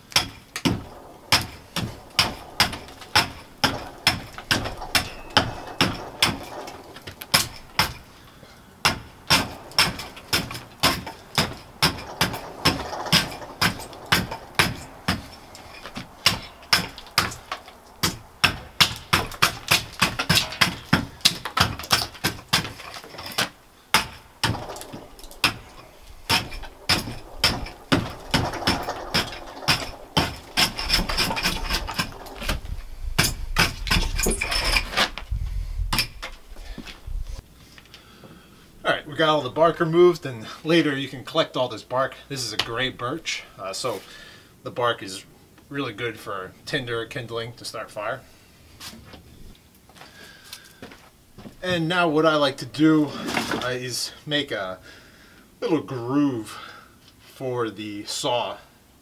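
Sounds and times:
blade chopping bark off log: 8.8s - 15.3s, 16.0s - 32.6s.

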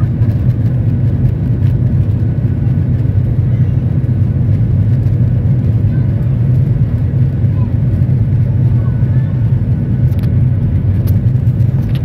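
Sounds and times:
jet engines at takeoff thrust: 0.0s - 12.0s.

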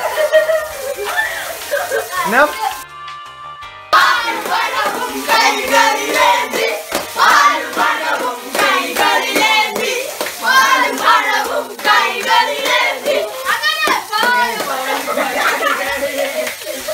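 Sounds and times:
hands clapping: 0.9s - 2.1s, 4.0s - 16.9s
boys singing together: 4.0s - 16.9s.

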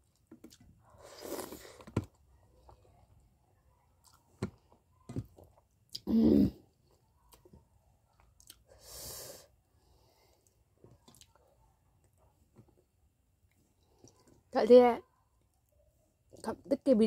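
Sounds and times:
person chewing food: 0.0s - 2.9s, 4.0s - 6.1s, 8.1s - 8.7s, 10.3s - 11.5s.

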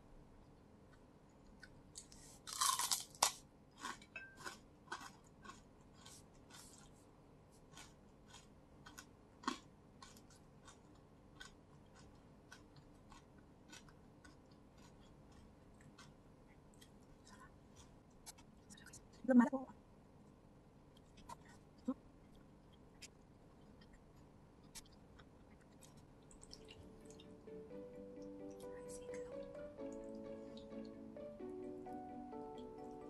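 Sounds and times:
crispy fried fish crunching: 2.0s - 7.0s, 7.6s - 16.2s.

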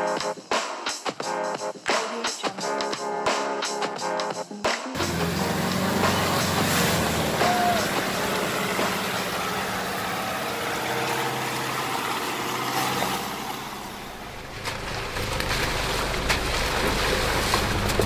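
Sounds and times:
vehicle engine running: 5.0s - 18.0s
deep low rumble: 13.9s - 18.0s.

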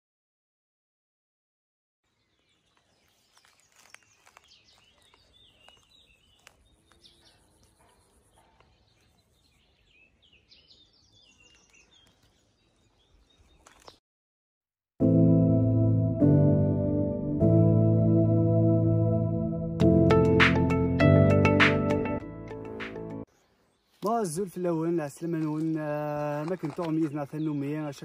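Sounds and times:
small birds chirping: 2.0s - 14.0s, 23.2s - 28.0s.

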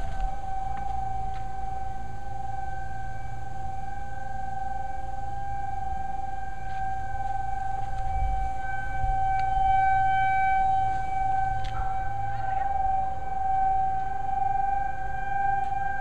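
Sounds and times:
warning siren steady tone: 0.0s - 16.0s.

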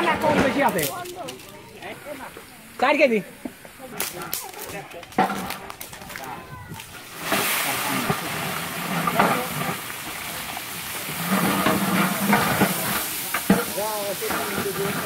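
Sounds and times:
rice sizzling in hot oil: 0.0s - 15.0s
ladle stirring in pot: 7.0s - 15.0s.

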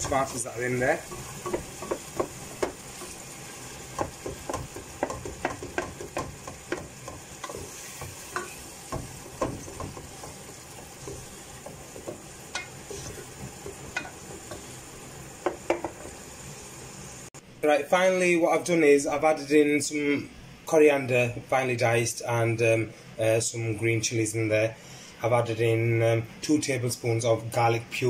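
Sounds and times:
spatula scraping a pan: 0.0s - 14.8s
tomatoes sizzling in oil: 0.0s - 17.4s.

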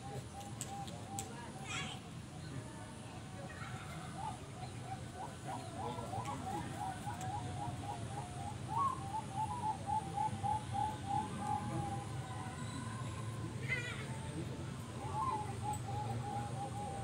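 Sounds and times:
doves cooing: 3.7s - 17.0s.

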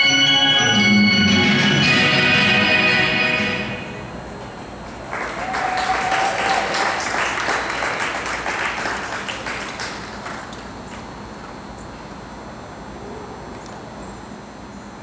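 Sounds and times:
spectators applauding: 4.9s - 10.5s.

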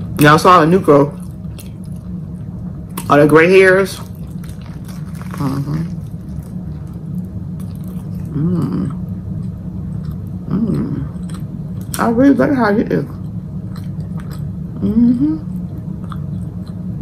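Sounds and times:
steady low hum: 0.0s - 17.0s
closed-mouth hums: 3.8s - 12.3s, 13.0s - 17.0s
woman chewing a sandwich: 4.0s - 12.0s, 13.2s - 17.0s.

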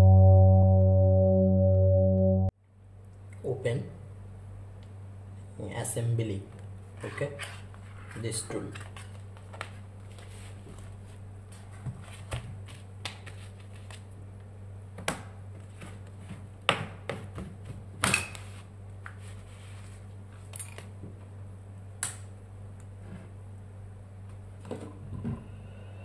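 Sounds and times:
steady low hum: 0.0s - 8.2s, 18.6s - 26.0s.

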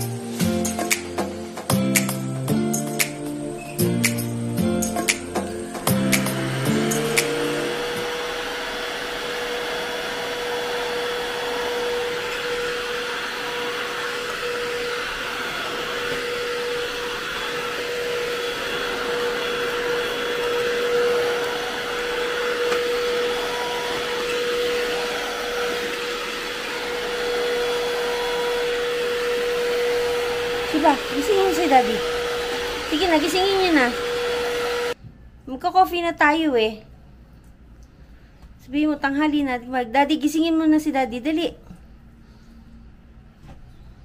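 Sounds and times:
stick vacuum running: 3.0s - 35.0s.

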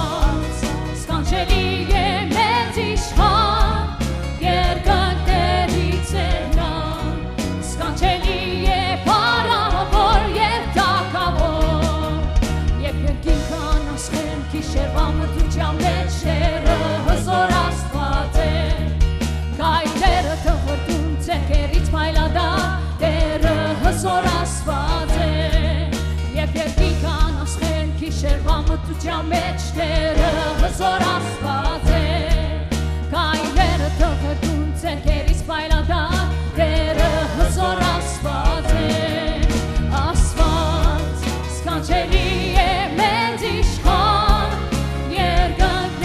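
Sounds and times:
backing voices singing: 0.0s - 12.2s, 13.2s - 19.0s, 22.2s - 25.7s, 29.3s - 32.6s, 36.5s - 46.0s
keyboard and electric guitars: 0.0s - 46.0s
woman singing lead: 0.0s - 46.0s.

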